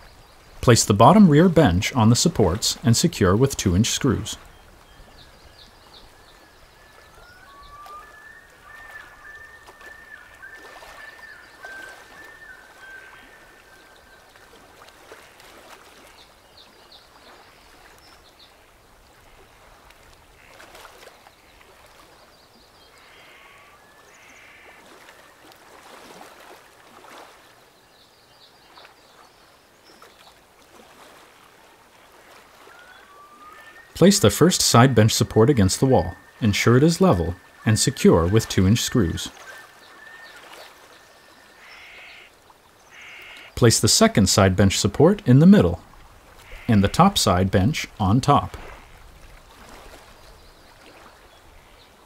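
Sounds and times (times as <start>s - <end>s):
birds warbling chirps: 3.6s - 14.5s, 22.2s - 24.8s, 32.6s - 43.6s
short high bird calls: 23.0s - 24.8s, 41.4s - 42.3s, 42.9s - 43.6s.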